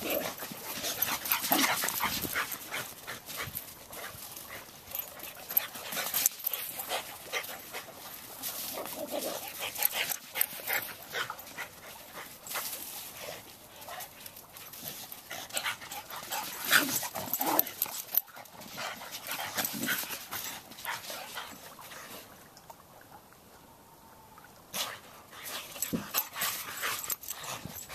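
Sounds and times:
dog breathing and play noises: 0.0s - 22.8s, 24.7s - 27.9s.

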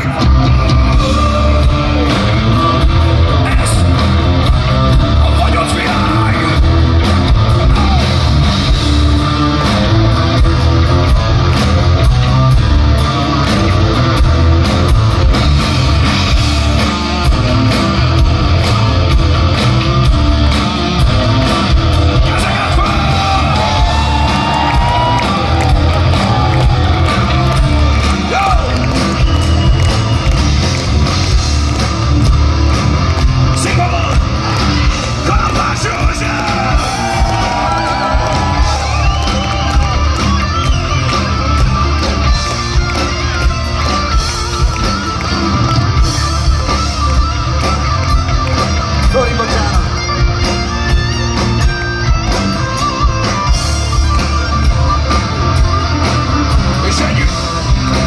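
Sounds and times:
person singing: 0.0s - 4.0s
distorted electric guitars: 0.0s - 58.0s
drums: 0.0s - 58.0s.

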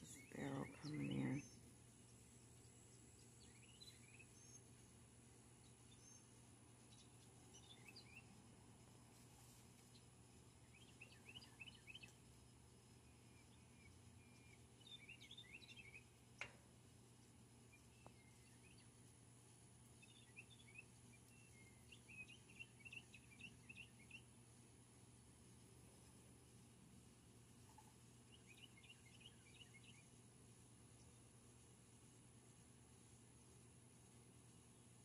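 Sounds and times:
low steady hum: 0.0s - 35.0s
songbirds chirping: 0.0s - 35.0s.

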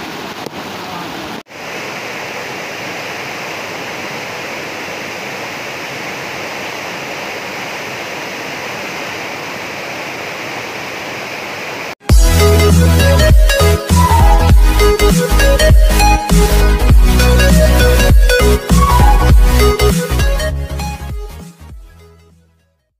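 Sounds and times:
floodwater rushing: 0.0s - 12.0s
electronic music with heavy beat: 12.0s - 22.0s.

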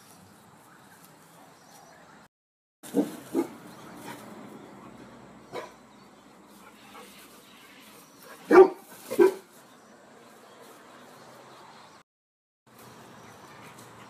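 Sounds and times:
dog barking: 2.9s - 3.6s, 5.5s - 5.8s, 8.5s - 9.5s.

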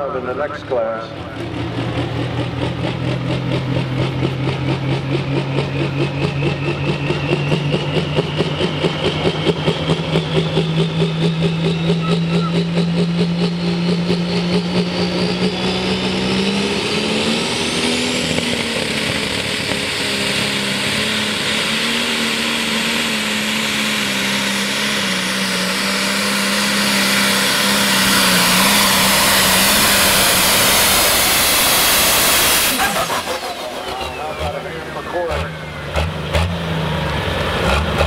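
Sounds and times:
diesel tractor engine at high revs: 0.0s - 38.0s
turbo whine rising: 1.3s - 36.3s.

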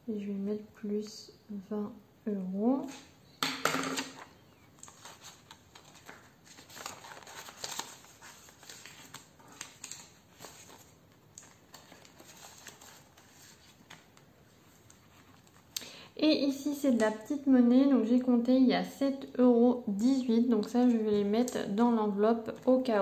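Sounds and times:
plastic pouches crinkling: 4.0s - 14.2s.

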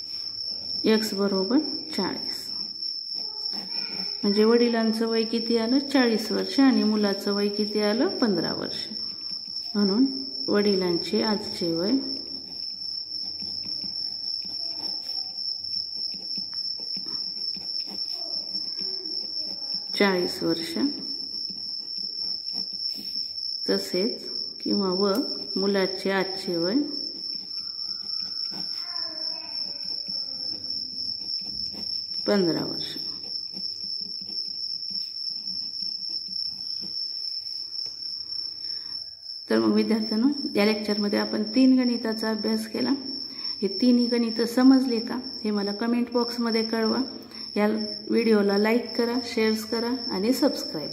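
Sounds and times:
cricket trilling: 0.0s - 50.9s
pen scratching on paper: 0.6s - 38.3s.

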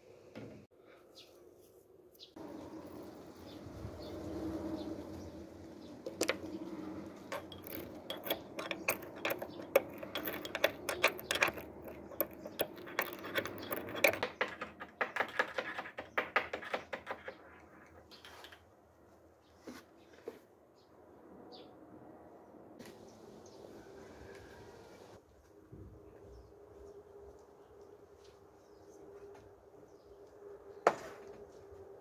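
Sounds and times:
mortar and pestle grinding: 7.2s - 17.2s.

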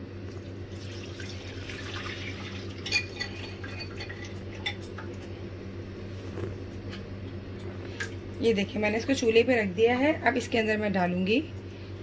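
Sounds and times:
batter pouring into a saucepan: 0.7s - 2.8s.

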